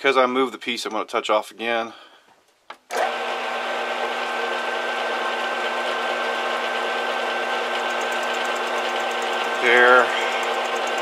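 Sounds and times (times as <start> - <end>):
metal lathe motor whine: 3.0 - 11.0.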